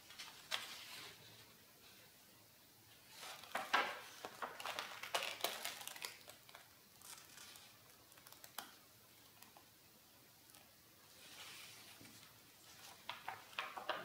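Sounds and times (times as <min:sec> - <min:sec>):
paper rustling and crinkling: 0:00.0 - 0:01.6, 0:03.0 - 0:09.7, 0:10.5 - 0:14.0.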